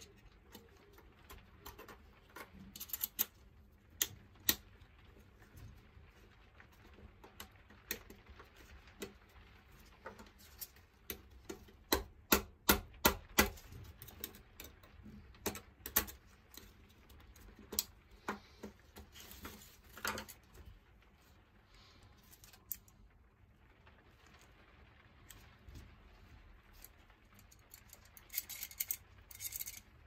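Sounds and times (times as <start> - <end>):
padlock parts clicking: 1.6 - 3.4, 27.5 - 29.8.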